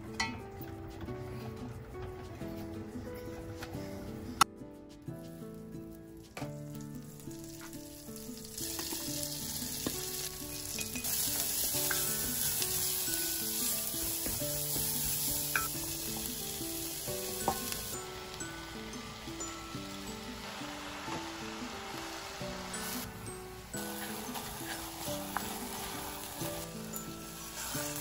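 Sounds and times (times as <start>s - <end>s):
soft background music: 0.0s - 28.0s
food sizzling in a pan: 6.2s - 28.0s.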